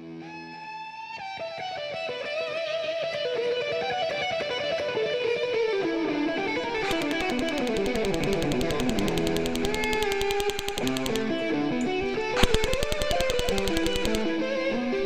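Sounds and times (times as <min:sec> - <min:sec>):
electric guitar runs: 0:06.7 - 0:15.0
rapid sharp hits: 0:06.8 - 0:14.5.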